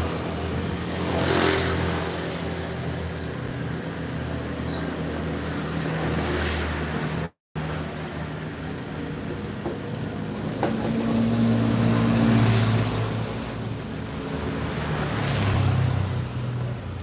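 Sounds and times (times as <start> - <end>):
motorbike engines passing: 0.0 - 17.0.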